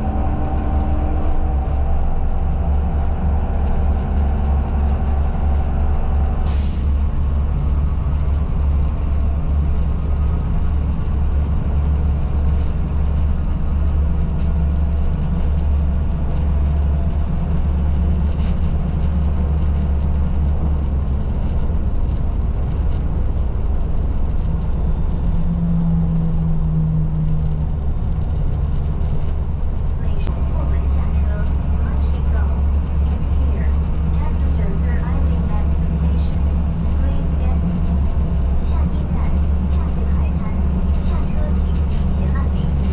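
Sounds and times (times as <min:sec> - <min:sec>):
bus engine and road rumble: 0:00.0 - 0:42.9.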